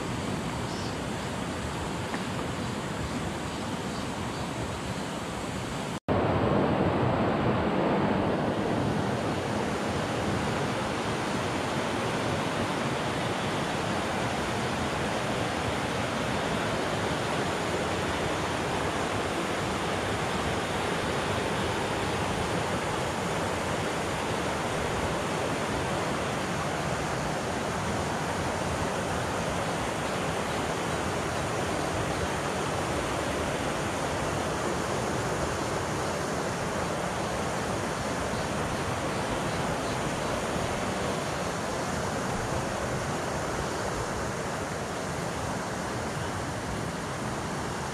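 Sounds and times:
river water rushing: 0.0 - 47.9.

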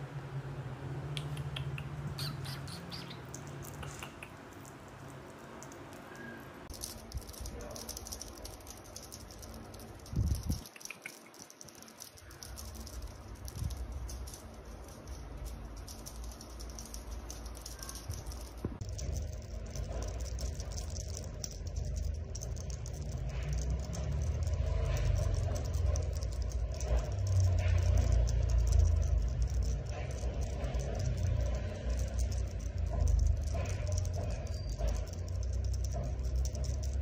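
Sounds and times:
feather toy rattling: 2.1 - 37.0
low rumble: 12.1 - 37.0.

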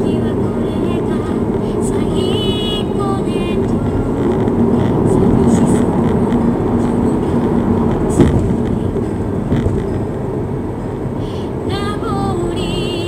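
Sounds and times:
car road and engine rumble: 0.0 - 13.0
sharp thump: 8.0 - 8.8.

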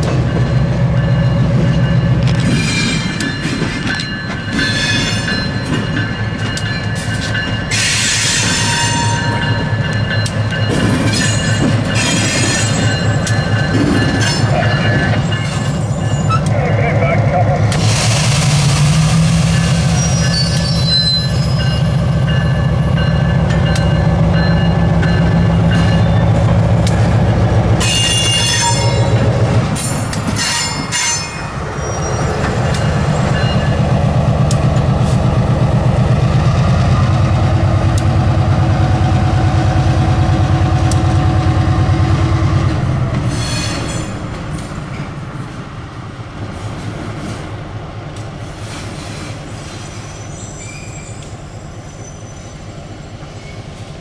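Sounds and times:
locomotive diesel engine: 13.3 - 30.5
wheels squealing: 19.8 - 23.1, 29.8 - 34.2, 48.6 - 53.8.

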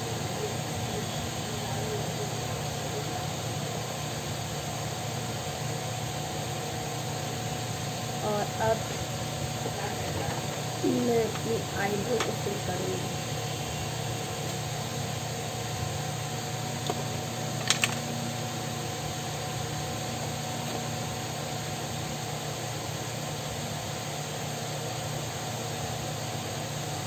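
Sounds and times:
electric fan humming: 0.0 - 27.0.

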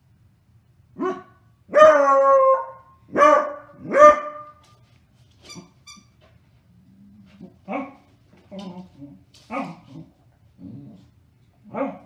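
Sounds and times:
dog barking: 1.0 - 4.6, 7.7 - 8.0, 11.7 - 12.0.

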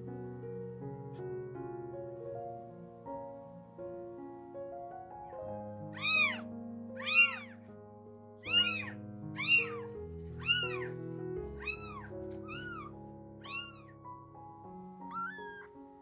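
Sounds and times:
soft background music: 0.0 - 16.0
kitten mewing: 5.9 - 6.4, 7.0 - 7.6, 8.4 - 10.9, 11.6 - 13.9, 15.0 - 15.7.

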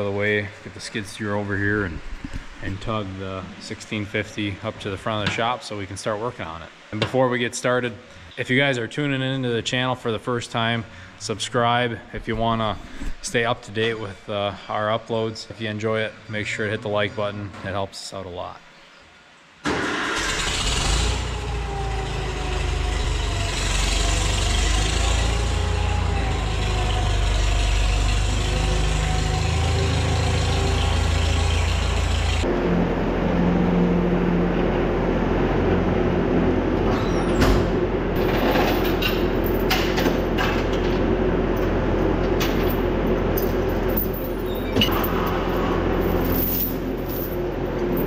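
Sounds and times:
tractor engine running: 19.7 - 48.0
skid steer engine idling: 21.3 - 38.3
metallic clinks of tow chain: 38.2 - 40.0, 43.4 - 48.0.

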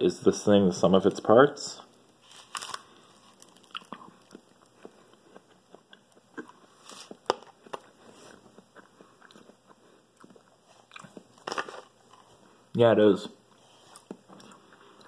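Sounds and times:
close-up chewing: 2.2 - 12.5, 13.5 - 15.0.

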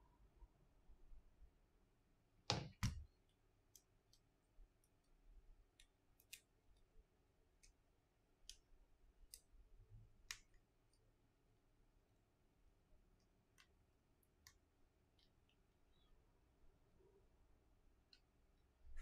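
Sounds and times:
faint ticks and taps of small parts: 10.2 - 11.1.

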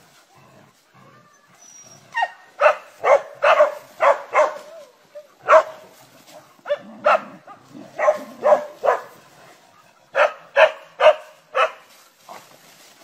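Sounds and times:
dog barking: 2.1 - 4.8, 5.4 - 5.9, 6.6 - 9.2, 10.1 - 11.9.

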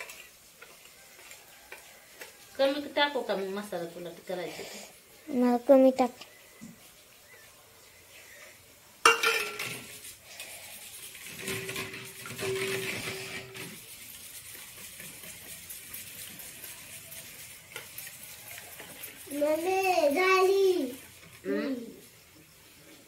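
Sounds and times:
spoon scraping bowl: 0.0 - 2.9, 9.1 - 20.2
spoon beating egg in metal bowl: 0.0 - 3.2, 9.1 - 20.2.

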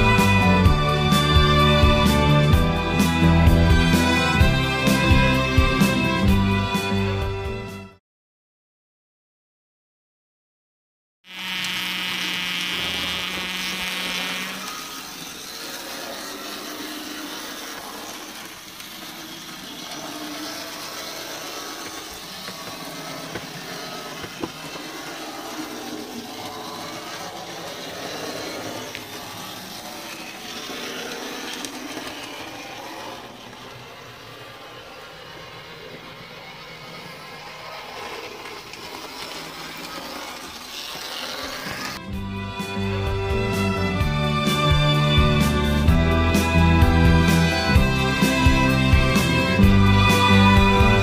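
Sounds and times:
model tram motor whirring: 0.0 - 7.5, 11.3 - 51.0
high-pitched motor whine: 11.3 - 51.0.

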